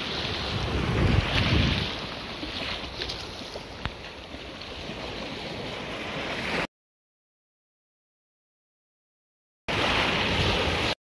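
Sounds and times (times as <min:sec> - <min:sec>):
wind rumbling on microphone: 0:00.0 - 0:06.3
sea water surging and washing: 0:00.0 - 0:06.7, 0:09.7 - 0:11.0.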